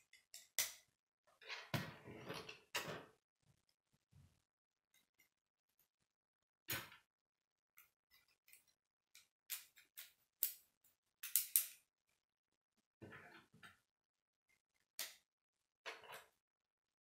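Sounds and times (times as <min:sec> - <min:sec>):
plastic pieces clicking together: 0:11.2 - 0:11.8.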